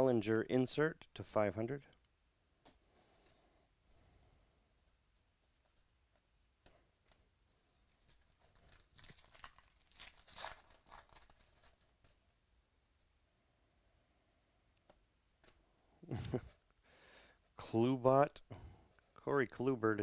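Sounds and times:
foil wrapper tearing and crinkling: 7.9 - 12.2.

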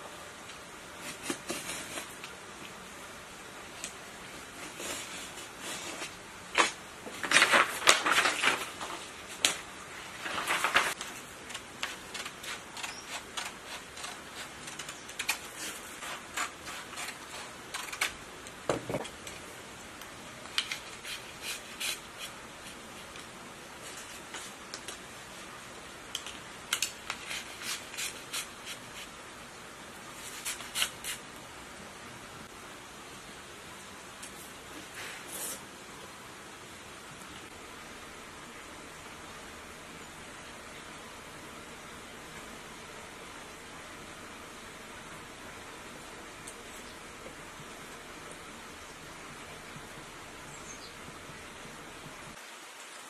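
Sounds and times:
stiff paper rustling: 4.4 - 18.2
scissors snipping paper: 10.7 - 18.2, 30.4 - 31.2.

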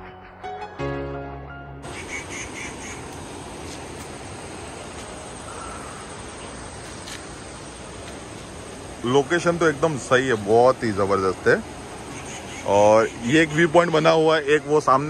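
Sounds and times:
background music: 0.0 - 1.9
short high calls: 1.8 - 4.2, 12.0 - 13.6
outdoor hiss: 1.8 - 15.0.

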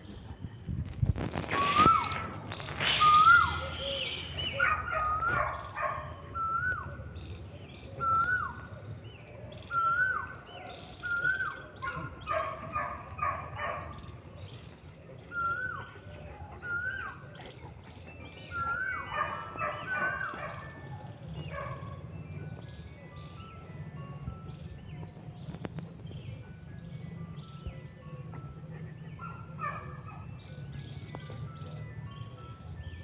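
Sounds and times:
dog whining in high cries: 1.3 - 7.0, 18.5 - 20.7.

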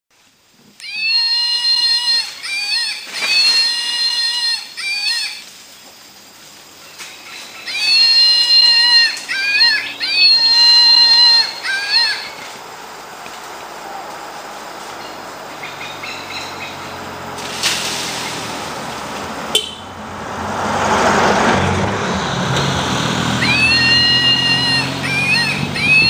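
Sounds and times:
forest background: 0.1 - 26.0
loud whistling animal call: 0.8 - 5.6, 6.8 - 12.8, 15.0 - 18.6, 23.0 - 26.0.

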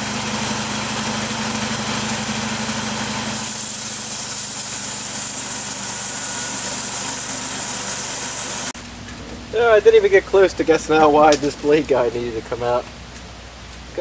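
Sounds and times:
gas engine droning: 0.0 - 8.8
band blade cutting log: 1.7 - 8.7.

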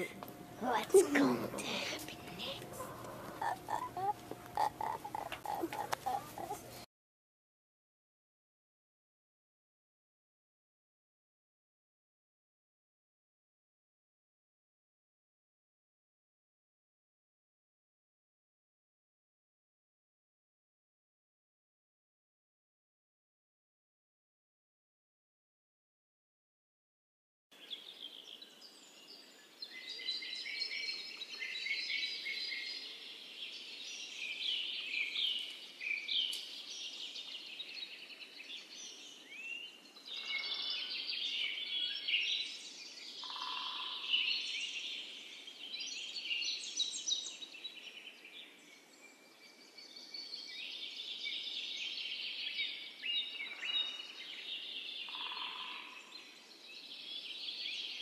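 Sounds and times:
birds chirping and singing: 0.0 - 6.8, 27.6 - 58.0
short lower bird calls: 40.1 - 41.9, 43.2 - 44.4, 55.0 - 56.1.

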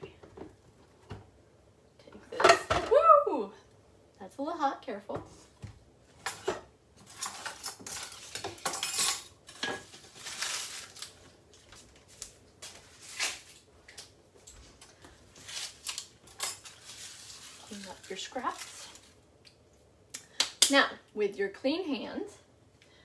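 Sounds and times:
utensils clinking against dishes: 6.2 - 10.0.

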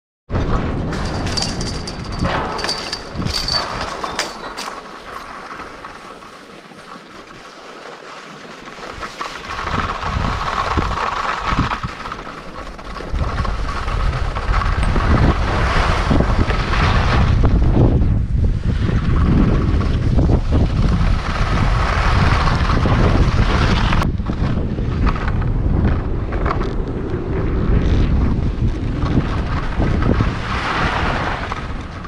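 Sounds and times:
wind buffeting microphone: 0.3 - 4.4, 9.0 - 32.0
skis scraping over snow: 2.6 - 32.0.

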